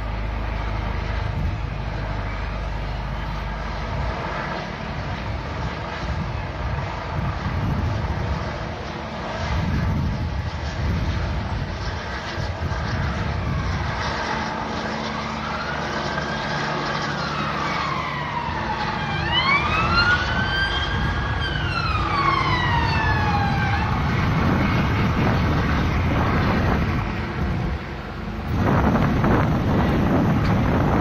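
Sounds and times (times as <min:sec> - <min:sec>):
steady low rumble: 0:00.0 - 0:31.0
police siren wailing: 0:00.3 - 0:31.0.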